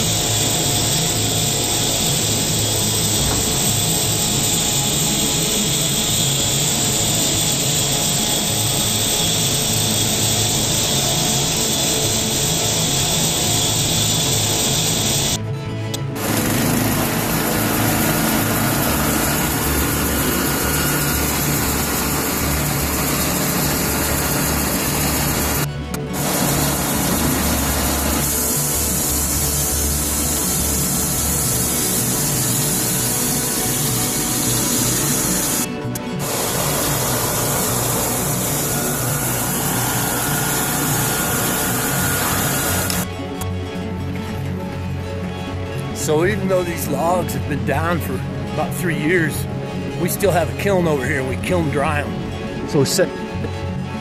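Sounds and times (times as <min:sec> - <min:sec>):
sawmill engine running: 0:00.0 - 0:15.4, 0:16.0 - 0:43.4.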